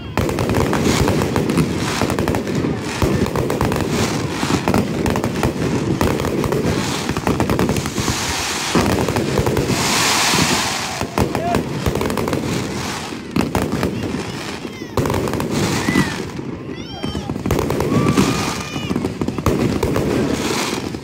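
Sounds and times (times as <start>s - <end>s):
fireworks bangs and cracks: 0.0s - 21.0s
fireworks hissing: 0.0s - 21.0s.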